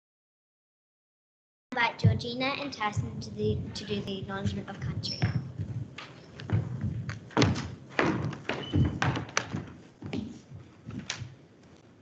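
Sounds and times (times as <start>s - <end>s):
irregular knocks and thumps: 2.9s - 11.4s.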